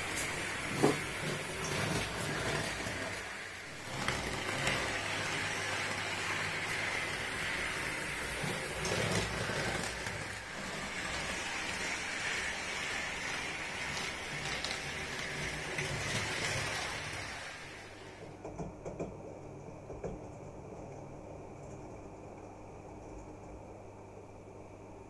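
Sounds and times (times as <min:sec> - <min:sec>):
model train running on track: 0:00.0 - 0:18.2.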